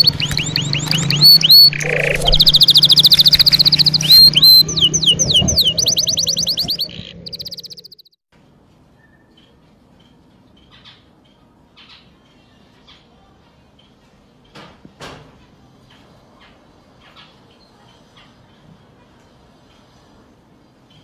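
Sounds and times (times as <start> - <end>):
canary song: 0.0 - 8.2.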